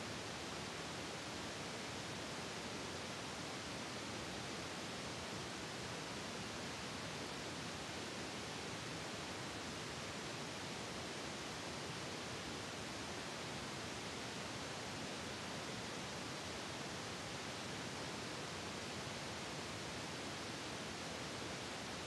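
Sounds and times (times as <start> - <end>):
steady static hiss: 0.0 - 22.0.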